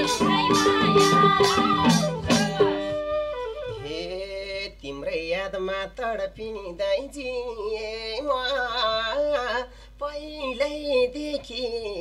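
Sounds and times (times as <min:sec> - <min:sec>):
man singing folk song: 0:03.8 - 0:12.0.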